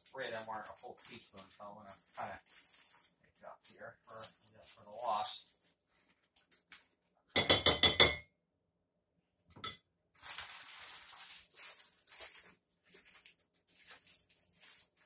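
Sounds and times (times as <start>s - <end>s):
metal spoon clinking on bowl: 7.4s - 8.2s.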